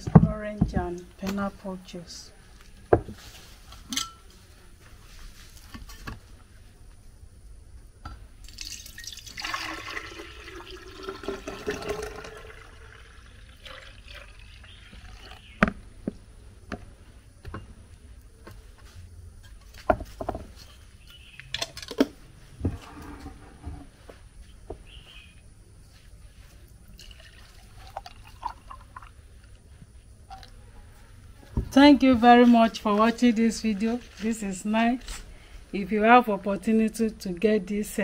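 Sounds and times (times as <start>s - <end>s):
juice pouring into a glass: 8.4s - 15.6s, 26.9s - 29.2s.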